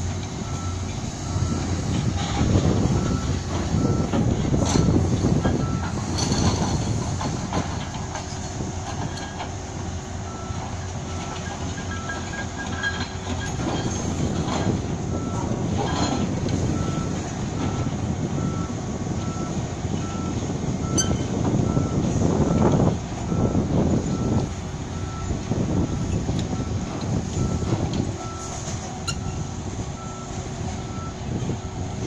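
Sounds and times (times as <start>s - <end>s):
diesel engine rumble: 0.0s - 32.0s.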